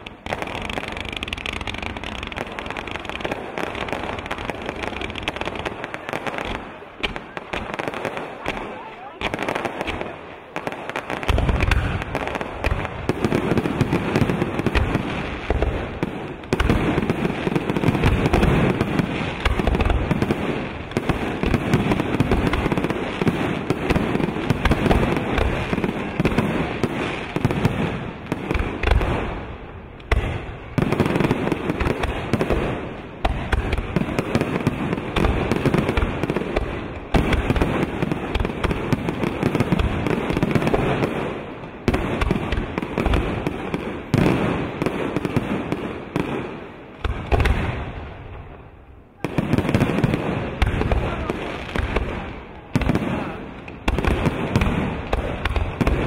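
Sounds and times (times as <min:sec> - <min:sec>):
fireworks crackling: 0:00.0 - 0:56.0.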